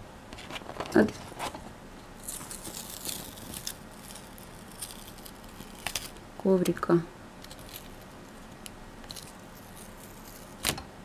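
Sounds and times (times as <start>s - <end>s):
paper peeling rustle: 2.2s - 6.2s, 7.4s - 10.8s.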